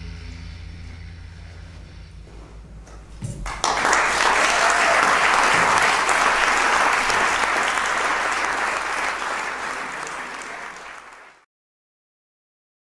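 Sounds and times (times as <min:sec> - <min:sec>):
audience applauding: 0:03.4 - 0:11.5.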